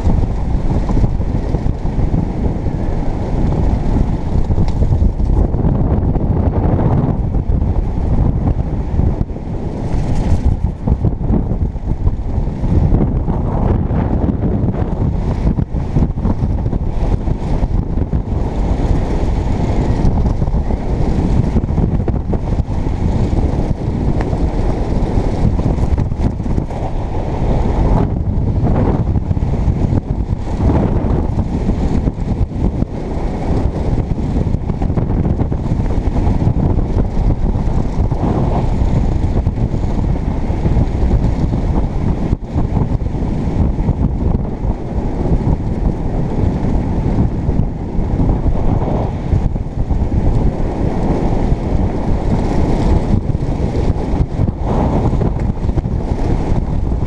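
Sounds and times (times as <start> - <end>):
wind buffeting microphone: 0.0 - 57.0.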